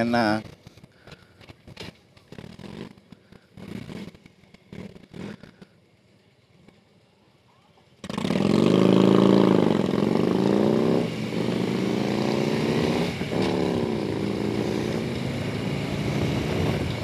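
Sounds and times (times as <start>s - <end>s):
motorcycle engine revving: 1.8s - 5.8s, 8.0s - 17.0s.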